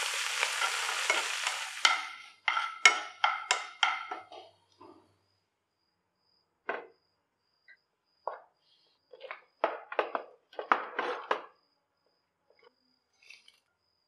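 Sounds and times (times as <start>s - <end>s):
spatula stirring and scraping pan: 0.0s - 4.5s.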